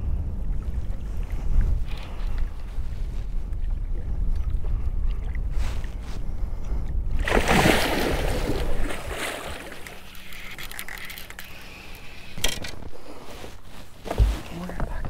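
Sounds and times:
fish thrashing water splashing: 7.2s - 11.8s.

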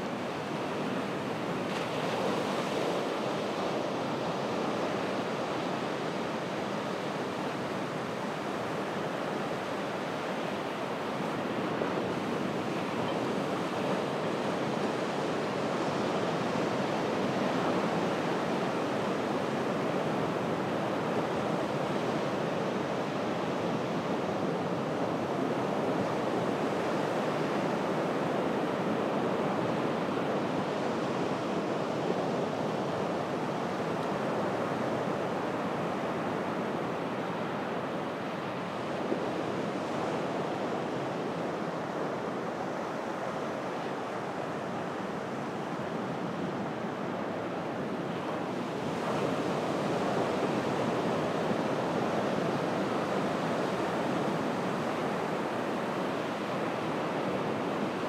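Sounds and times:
ocean surf washing on beach: 0.0s - 58.0s.

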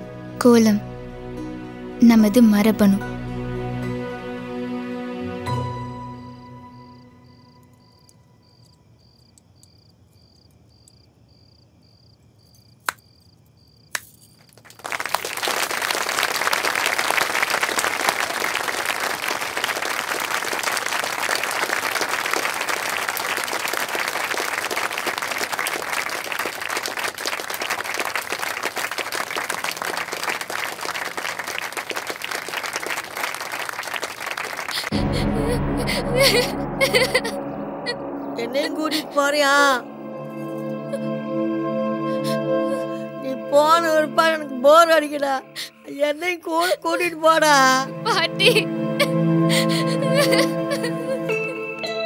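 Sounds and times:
audience applauding: 14.4s - 38.0s, 48.0s - 51.9s.

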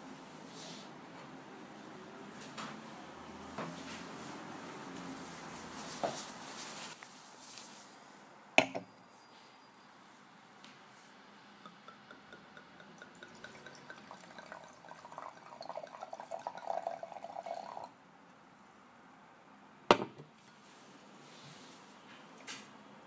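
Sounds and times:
bottle set down on glass table: 8.6s - 8.9s
wine pouring into a glass: 11.7s - 18.0s.

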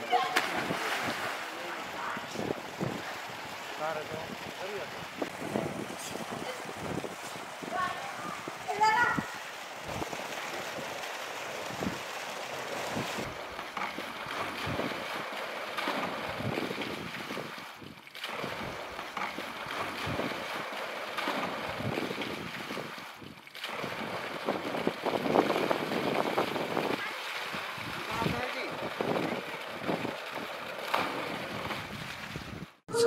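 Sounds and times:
water splashing from swimming: 0.0s - 32.8s
wind buffeting the microphone: 0.4s - 10.2s, 11.6s - 12.1s, 12.8s - 13.4s, 21.7s - 23.4s, 24.0s - 30.5s, 31.3s - 32.8s.

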